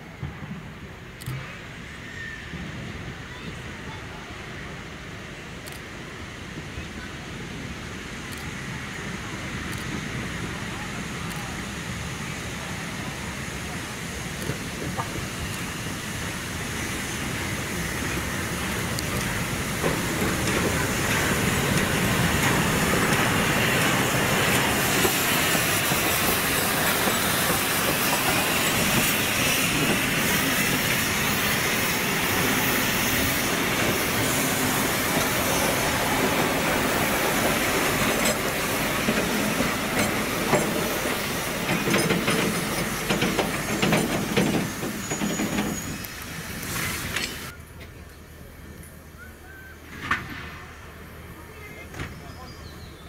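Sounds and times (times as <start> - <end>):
steam locomotive passing: 0.0 - 53.0
steam hissing: 3.6 - 47.6
train wheels clicking over rail joints: 14.0 - 48.2.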